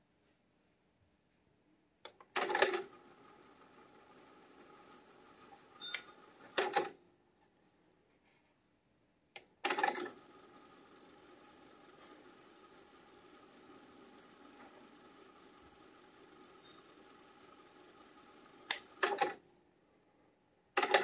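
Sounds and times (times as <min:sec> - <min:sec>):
tape winding whir: 0:02.4 - 0:06.9, 0:09.6 - 0:19.4.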